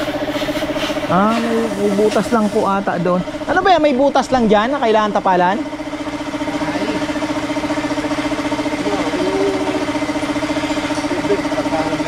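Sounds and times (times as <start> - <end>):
small engine idling: 0.0 - 12.0.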